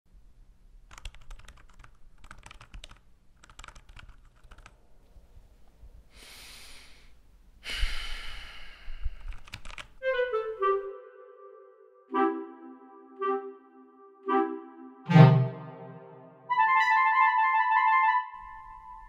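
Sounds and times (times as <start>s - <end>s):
man sighing heavily: 6.2s - 9.1s
keyboard key clicks: 9.3s - 9.9s.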